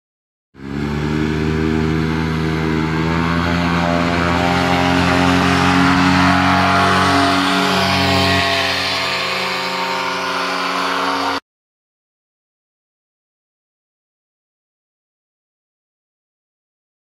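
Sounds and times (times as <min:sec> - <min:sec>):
paramotor engine drone: 0:00.6 - 0:11.4.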